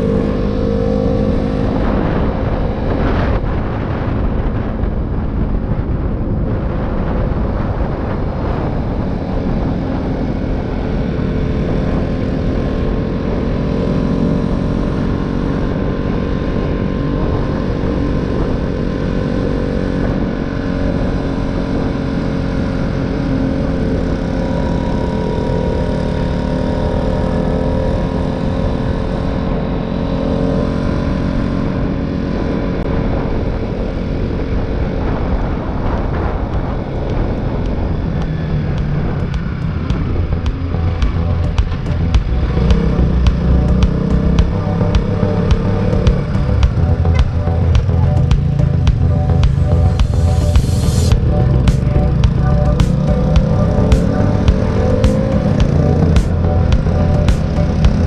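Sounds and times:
motorcycle engine cruising: 0.0 - 58.0
wind rumble on microphone: 0.0 - 58.0.

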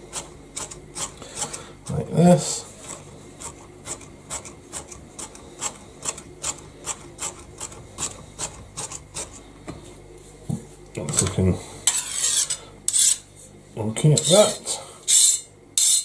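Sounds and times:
knife blade scraping board: 0.1 - 1.6, 11.9 - 13.2, 15.1 - 16.0.

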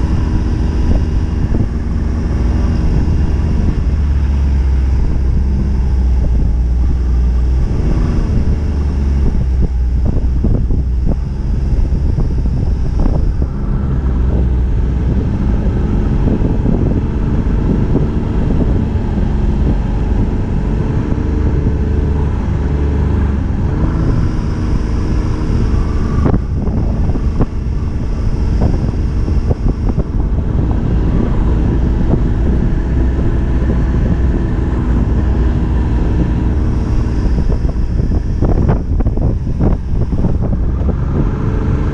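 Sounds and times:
snowmobile engine running: 0.0 - 41.9
wind buffeting microphone: 0.0 - 41.9.

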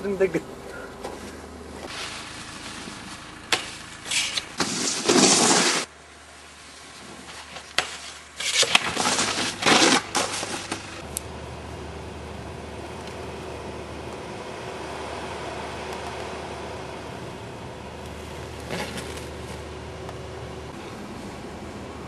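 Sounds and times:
crunching and scraping on snow: 1.0 - 5.9, 6.6 - 11.0, 18.2 - 19.9.

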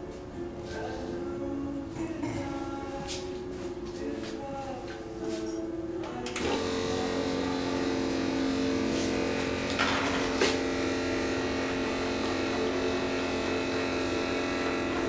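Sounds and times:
small pump motor humming: 6.2 - 15.0.

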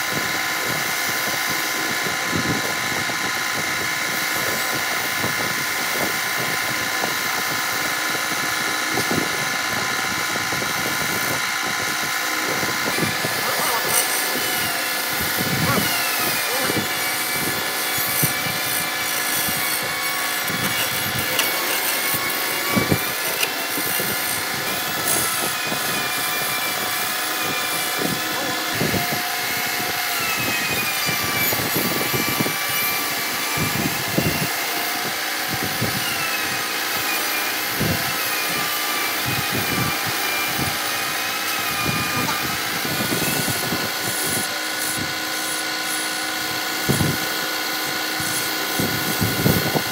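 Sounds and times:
high wavering whine: 0.0 - 49.9
chisel hissing on spinning wood: 10.8 - 49.9.

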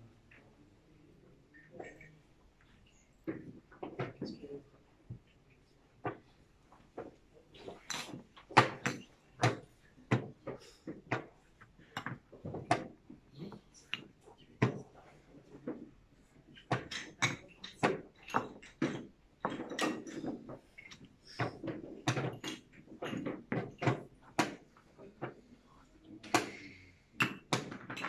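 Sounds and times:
chess pieces clacking on boards: 16.6 - 25.4.

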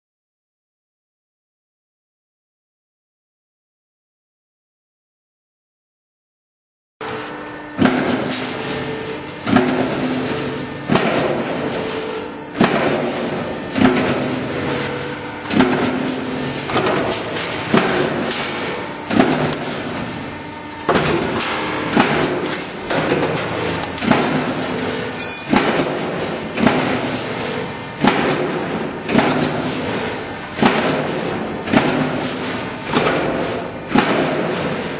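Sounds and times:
production line hum: 7.0 - 34.9
punch press metallic bang: 12.6 - 14.8, 15.4 - 20.2, 20.9 - 27.2, 28.0 - 34.8.

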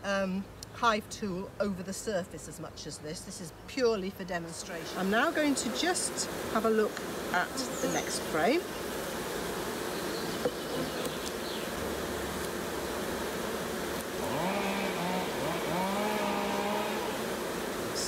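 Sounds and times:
honeybees buzzing: 4.2 - 18.0
bee flying close buzzing: 4.7 - 18.0.

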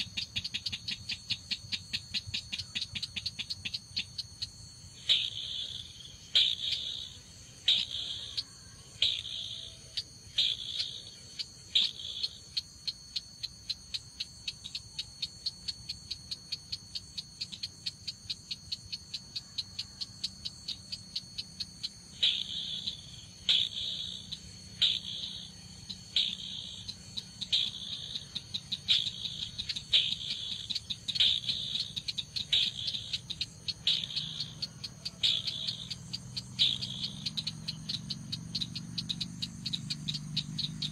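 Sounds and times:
fast run of ticks: 0.0 - 4.5, 26.1 - 40.9
thin steady high tones: 0.0 - 40.9.

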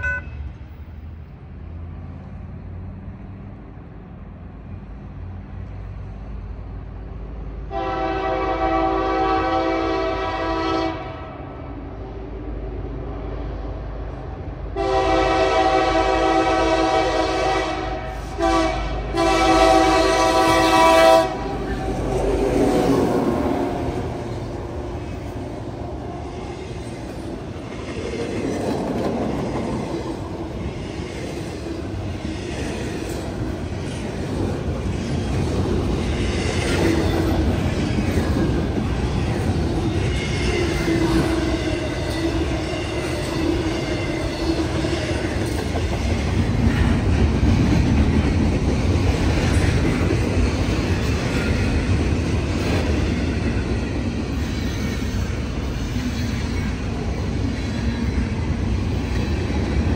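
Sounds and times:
locomotive air horn blasts: 0.0 - 0.5, 7.7 - 11.3, 14.8 - 21.9
train rumbling past: 0.0 - 59.9
train wheels clacking over rail joints: 26.2 - 59.9.

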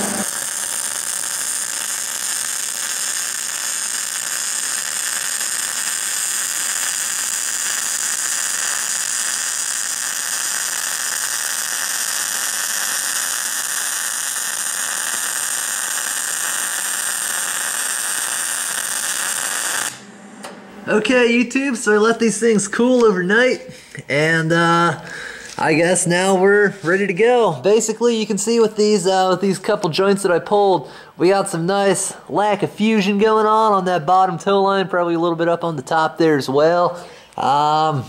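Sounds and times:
welding arc hissing: 0.0 - 20.1.

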